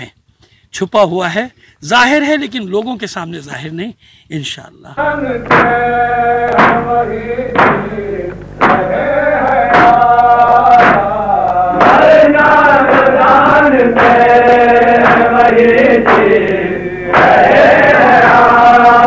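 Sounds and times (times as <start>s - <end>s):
man singing a slow chant: 4.3s - 19.0s.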